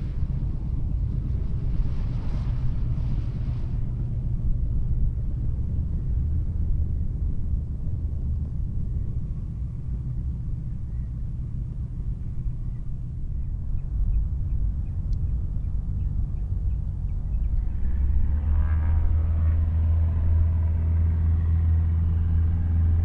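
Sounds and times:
light aircraft engine droning: 0:00.0 - 0:23.0.

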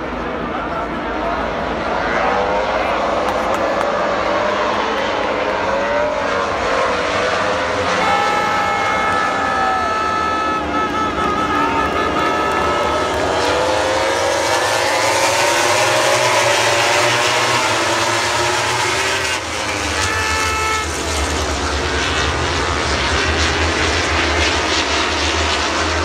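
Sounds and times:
crowd noise: 0:00.0 - 0:26.0
low helicopter drone: 0:00.0 - 0:26.0
racing motorcycle engines accelerating: 0:00.0 - 0:26.0
horn: 0:07.7 - 0:15.0, 0:18.8 - 0:21.4.

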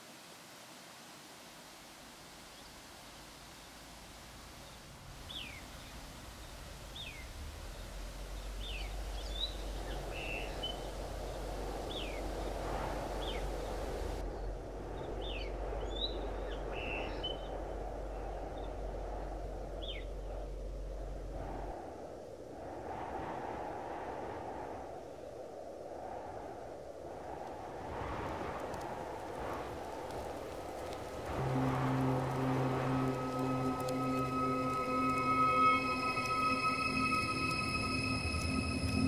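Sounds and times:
stream rushing: 0:00.0 - 0:14.2, 0:28.8 - 0:39.0
low steady hum: 0:29.4 - 0:39.0.

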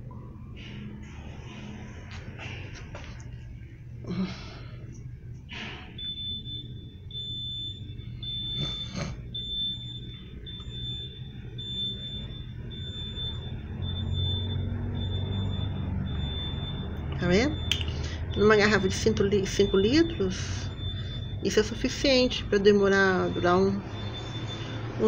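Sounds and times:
low hum: 0:00.0 - 0:25.0
high-pitched electronic beeping: 0:05.9 - 0:25.0.

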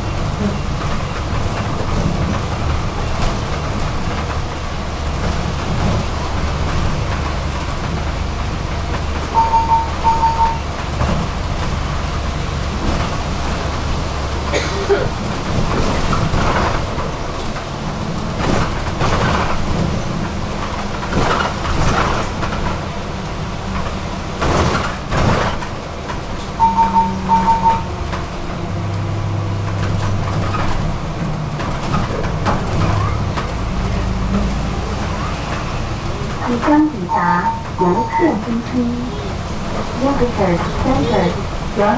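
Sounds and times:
bus engine droning: 0:00.0 - 0:41.9
road noise: 0:00.0 - 0:41.9
short high beeps: 0:09.3 - 0:10.6, 0:26.6 - 0:27.9.

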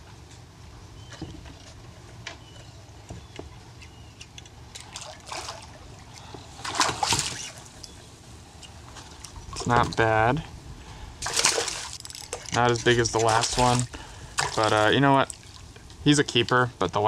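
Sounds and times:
fish splashing at surface: 0:04.8 - 0:07.8, 0:11.2 - 0:15.8
water lapping: 0:04.8 - 0:10.2, 0:10.8 - 0:16.1.

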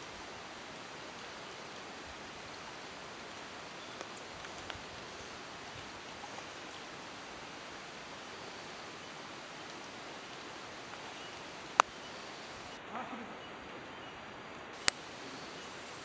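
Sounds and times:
river flowing: 0:00.0 - 0:16.0
faint short clicks: 0:14.8 - 0:15.0.

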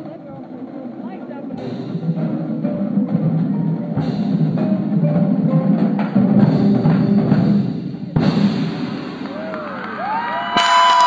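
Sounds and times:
marimba: 0:00.0 - 0:08.7
marching drums: 0:00.0 - 0:11.0.

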